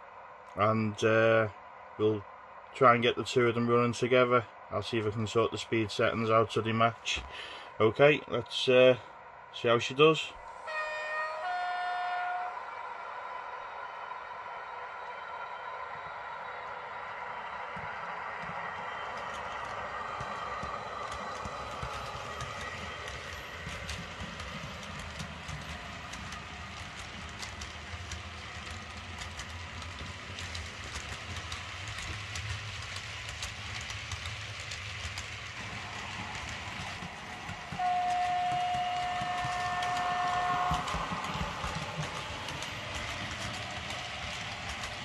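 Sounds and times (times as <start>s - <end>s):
model locomotive running hum: 9.6s - 45.0s
train horn held note: 10.6s - 12.8s, 37.7s - 41.2s
wheels ticking over rail joints: 17.7s - 45.0s.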